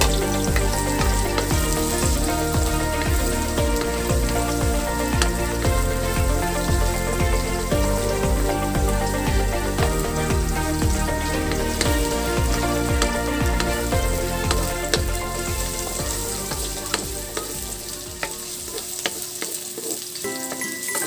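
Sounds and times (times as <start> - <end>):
onions sizzling in oil: 0.0 - 21.0
wooden spatula scraping a pan: 9.8 - 20.7.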